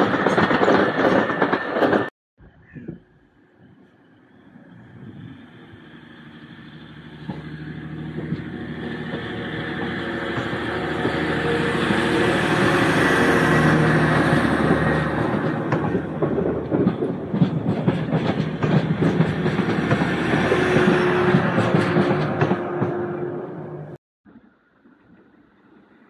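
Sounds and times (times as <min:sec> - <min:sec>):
train engine drone: 0:03.4 - 0:26.0
wheels clacking over rail joints: 0:05.1 - 0:24.0.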